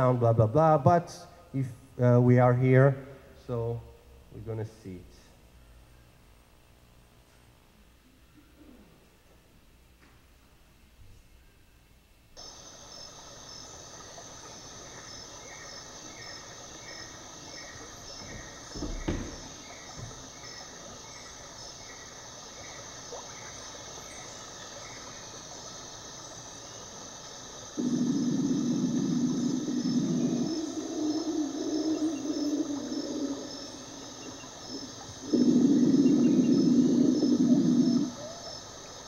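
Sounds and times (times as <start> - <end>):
insect chorus chirring: 12.4 - 39.0
thud: 18.3 - 20.2.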